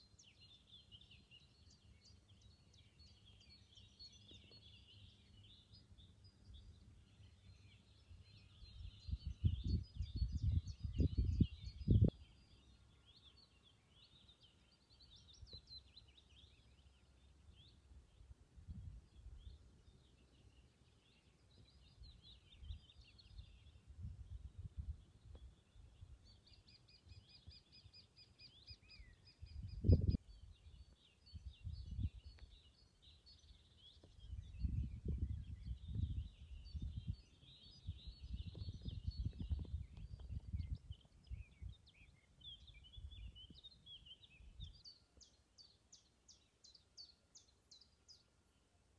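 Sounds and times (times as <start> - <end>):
small birds singing and chirping: 0.0 - 48.9
low rumbles and bumps on microphone: 38.2 - 41.0.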